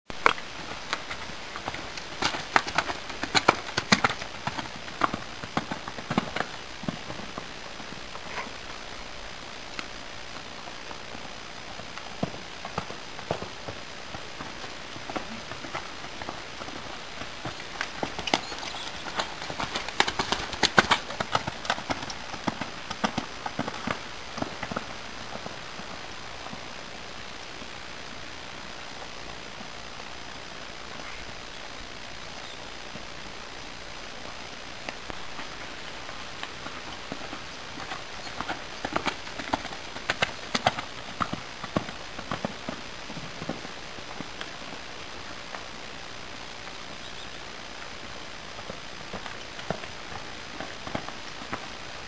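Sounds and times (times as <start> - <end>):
horse hooves clip-clopping: 0.1 - 52.0
hoofbeats on sand: 0.2 - 8.6, 10.9 - 26.7.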